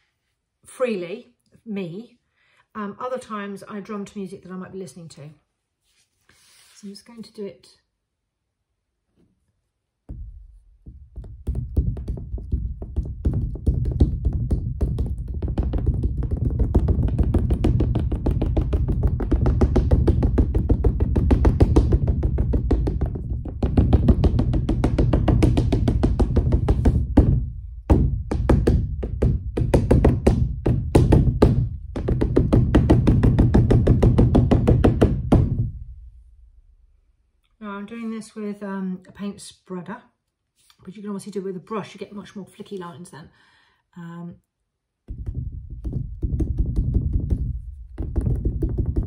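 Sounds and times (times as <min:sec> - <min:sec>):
paint spreader drumming on canvas: 0:10.1 - 0:35.8, 0:45.1 - 0:49.0.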